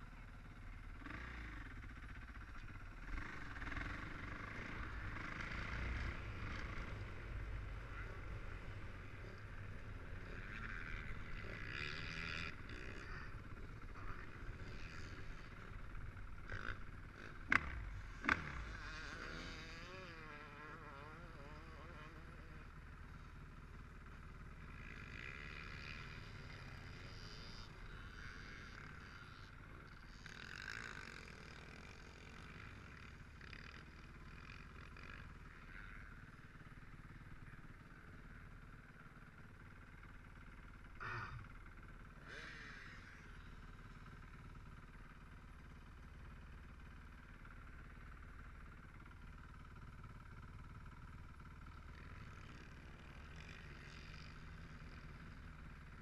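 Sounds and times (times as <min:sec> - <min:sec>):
dirt bike engine revving: 0:00.9 - 0:02.3, 0:02.9 - 0:38.5, 0:40.8 - 0:44.4.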